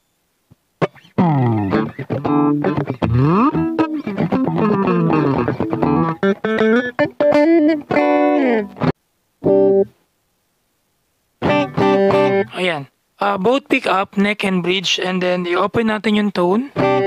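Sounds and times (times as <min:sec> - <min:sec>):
electric guitar through amp: 0:00.8 - 0:09.9, 0:11.4 - 0:12.7, 0:16.7 - 0:17.0.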